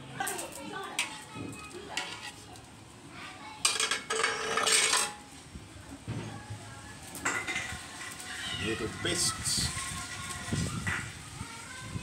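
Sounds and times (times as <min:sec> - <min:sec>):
knife and cookware clattering: 0:03.6 - 0:05.2.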